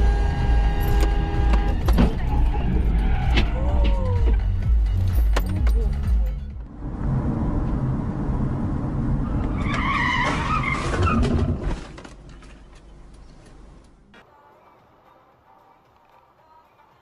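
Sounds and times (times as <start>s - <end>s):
tires screeching: 0.0s - 4.6s, 6.7s - 11.9s
car road and engine noise: 0.0s - 17.0s.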